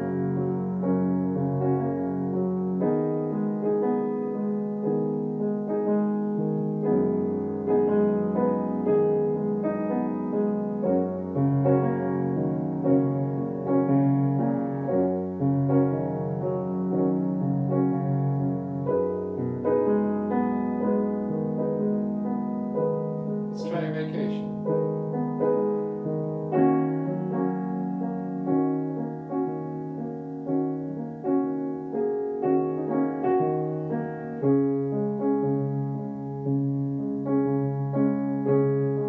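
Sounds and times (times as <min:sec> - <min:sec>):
grand piano playing chords: 0:00.0 - 0:39.0.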